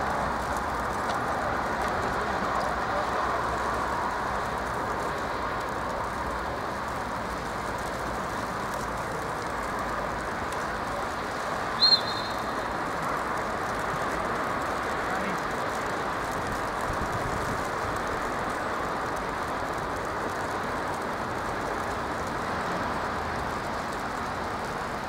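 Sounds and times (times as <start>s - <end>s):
outdoor background rush: 0.0s - 25.0s
referee's whistle blast: 11.8s - 12.6s.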